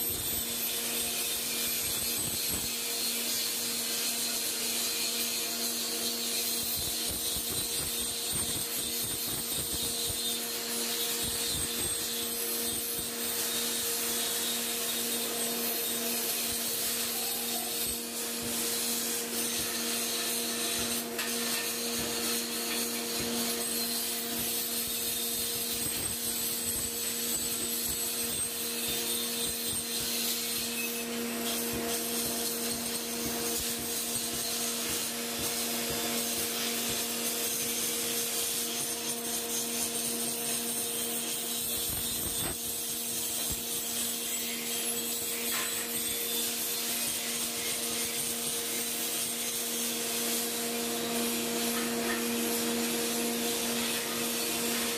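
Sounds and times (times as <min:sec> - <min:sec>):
grinding wheel rasping hiss: 0:00.0 - 0:54.9
grinder motor hum: 0:11.2 - 0:54.9.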